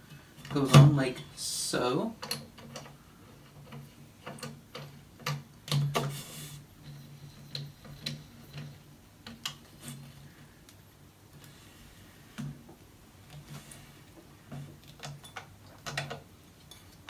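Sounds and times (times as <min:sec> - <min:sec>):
metal arm clicks and knocks: 0:14.5 - 0:17.0.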